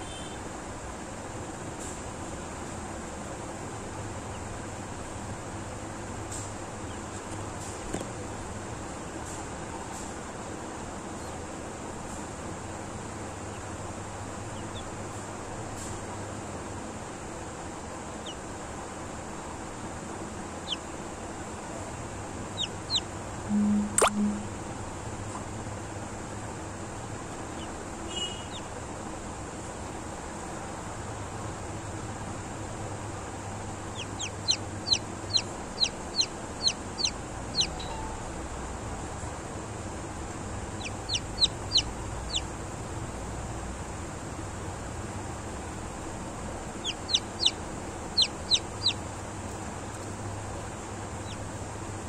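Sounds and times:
background hiss and hum: 0.0s - 52.0s
chick peeping: 14.6s - 14.9s, 18.2s - 18.4s, 20.6s - 20.9s, 22.5s - 24.4s, 33.8s - 38.2s, 40.7s - 42.6s, 46.8s - 52.0s.

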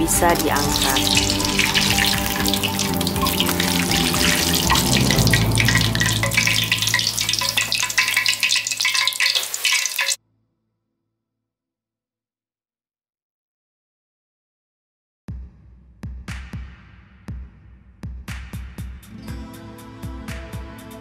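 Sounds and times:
hot oil sizzling and crackling: 0.0s - 10.2s.

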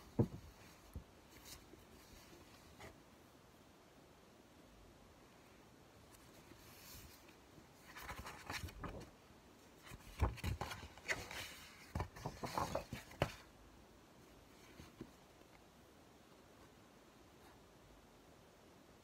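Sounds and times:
book taps and knocks: 0.1s - 1.1s
paper rustling: 6.1s - 9.1s, 9.8s - 13.5s.

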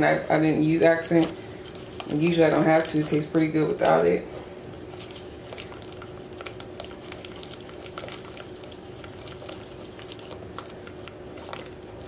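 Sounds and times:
faint steady hum: 0.0s - 12.0s
sauce sloshing in a pot: 4.6s - 12.0s.

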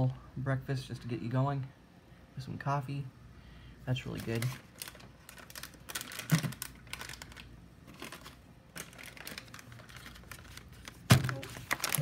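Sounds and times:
plastic wrappers crinkling: 3.9s - 12.0s.

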